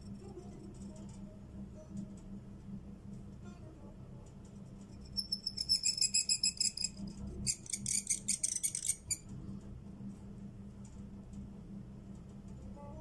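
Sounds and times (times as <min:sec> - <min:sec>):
reed pen squeaking on paper: 0:05.1 - 0:09.2.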